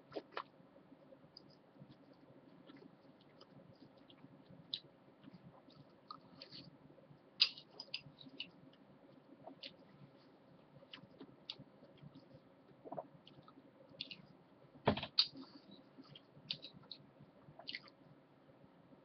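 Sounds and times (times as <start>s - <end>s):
chewing sounds: 7.4s - 9.9s, 15.2s - 18.0s.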